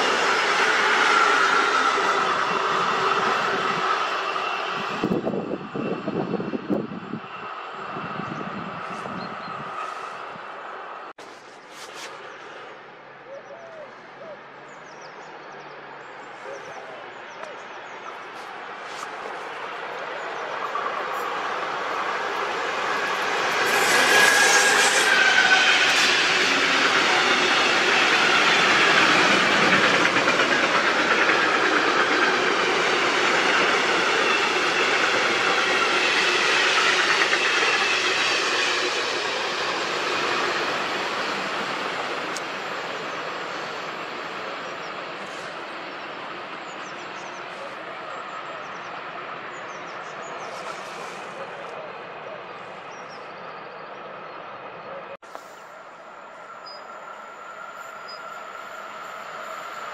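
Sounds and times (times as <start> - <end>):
high squeal: 0.0 - 10.7, 20.1 - 49.0, 55.4 - 59.9
train wheels on rails: 0.0 - 12.8, 16.6 - 53.4, 55.2 - 59.9.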